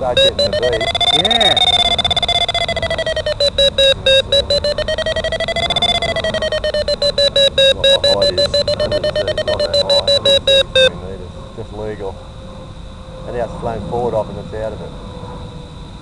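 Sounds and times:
rapid pitched electronic beeps: 0.0s - 10.9s.

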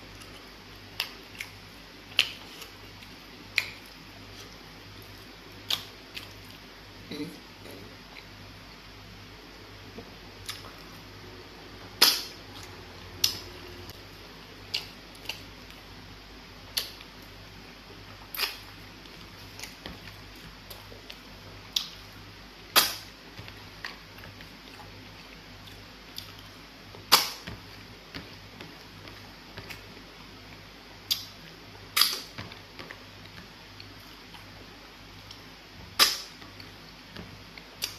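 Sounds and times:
faint low hum: 0.0s - 37.9s
wet mouth smacks eating: 18.3s - 18.7s.

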